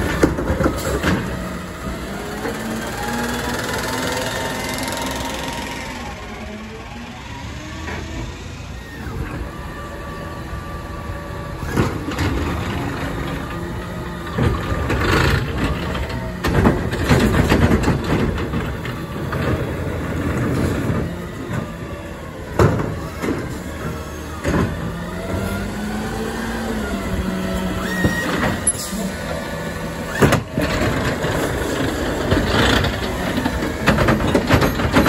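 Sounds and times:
garbage truck engine running: 0:00.0 - 0:35.0
cart bangs and knocks: 0:14.3 - 0:21.7, 0:30.1 - 0:35.0.

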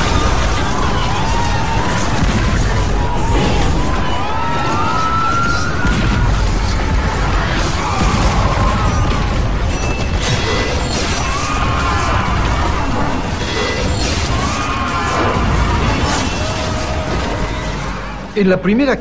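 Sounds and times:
music: 0:00.0 - 0:19.0
men shouting: 0:10.7 - 0:18.3.

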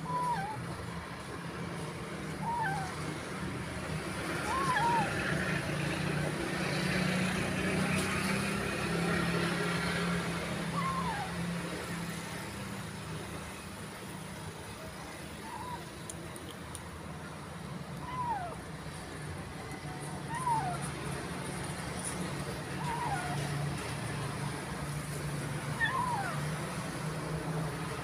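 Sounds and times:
kitten mewing: 0:00.0 - 0:00.7, 0:02.4 - 0:03.0, 0:04.4 - 0:05.3, 0:10.7 - 0:11.5, 0:17.9 - 0:18.6, 0:20.2 - 0:20.9, 0:22.6 - 0:23.6, 0:25.7 - 0:26.6
low traffic hum: 0:00.0 - 0:28.0.

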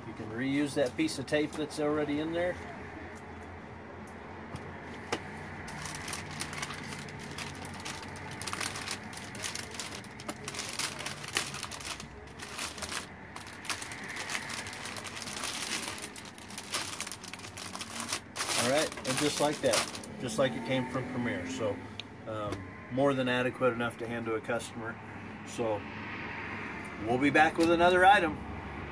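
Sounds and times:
plastic bag crinkling: 0:05.7 - 0:20.1.

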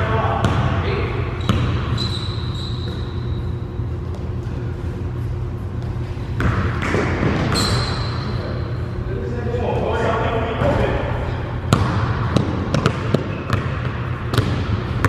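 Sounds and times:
sneakers squeaking: 0:00.0 - 0:09.0, 0:09.8 - 0:15.0
basketball dribbling on hardwood: 0:11.7 - 0:15.0.

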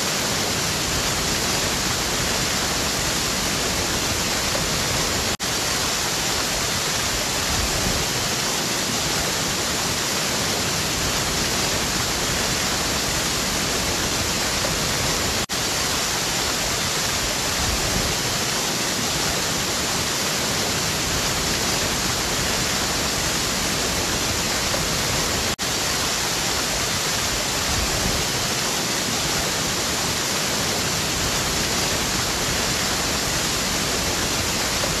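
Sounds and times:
waterfall rushing: 0:00.0 - 0:35.0.

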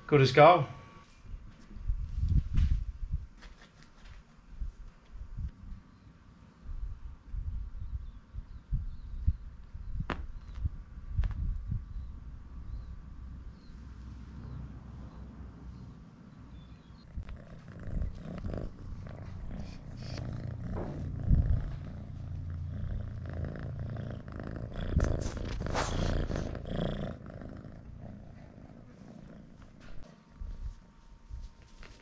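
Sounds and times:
cat purring: 0:13.4 - 0:32.0.

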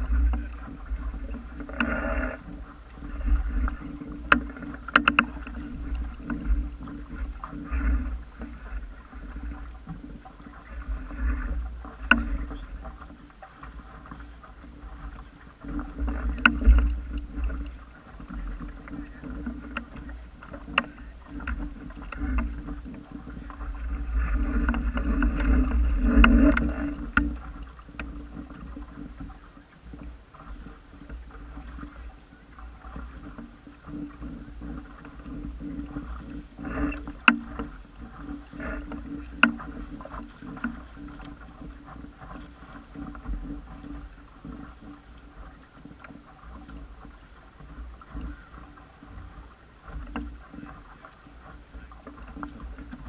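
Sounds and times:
boat fittings knocking: 0:00.0 - 0:10.6, 0:11.5 - 0:29.3, 0:32.8 - 0:43.9
water washing along a hull: 0:00.0 - 0:53.0
wind rumble on microphone: 0:00.0 - 0:53.0.

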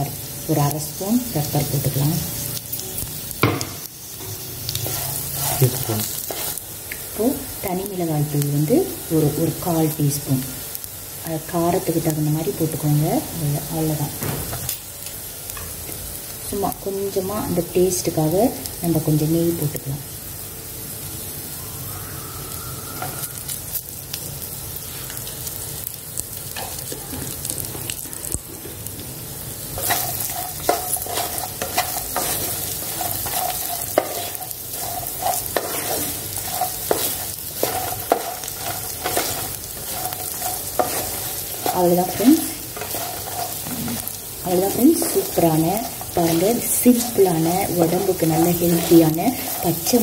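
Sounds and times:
food sizzling in frying pan: 0:00.0 - 0:50.0
wooden spatula scraping pan: 0:04.7 - 0:06.6, 0:29.8 - 0:50.0.

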